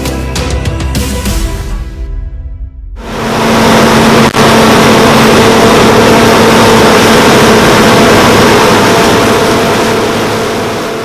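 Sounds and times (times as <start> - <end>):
combine harvester running: 3.0 - 11.0
steady hum: 3.0 - 11.0.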